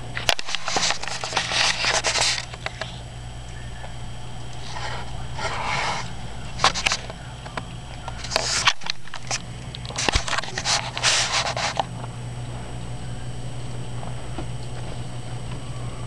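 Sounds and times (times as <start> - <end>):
steady low hum: 0.0 - 16.0
cat scratching on carpet: 0.3 - 2.8, 4.6 - 7.1, 8.1 - 12.6.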